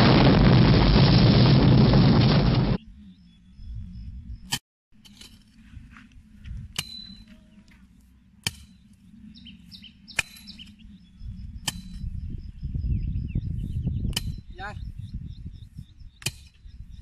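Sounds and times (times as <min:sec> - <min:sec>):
birds chirping: 0:02.7 - 0:04.5, 0:06.2 - 0:17.0
hoe chopping hard soil: 0:06.7 - 0:07.3, 0:08.4 - 0:08.9, 0:10.1 - 0:10.7, 0:11.6 - 0:12.0, 0:14.1 - 0:14.5, 0:16.2 - 0:16.7.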